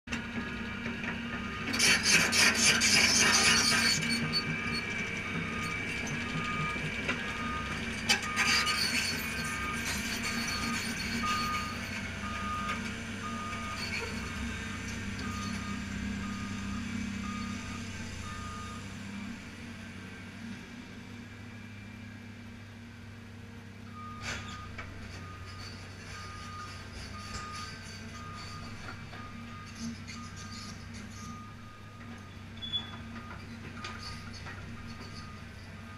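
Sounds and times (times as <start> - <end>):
diesel engine running: 0.1 - 35.9
travel alarm beeping: 9.5 - 18.8.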